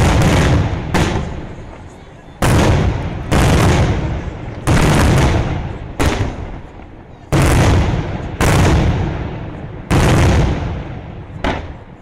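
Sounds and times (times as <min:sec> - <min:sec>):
fireworks bangs with rumbling echo: 0:00.0 - 0:12.0.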